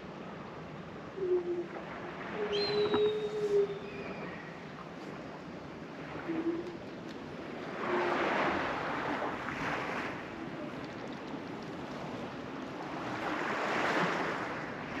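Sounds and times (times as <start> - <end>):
small waves washing against concrete: 6.6 - 15.0.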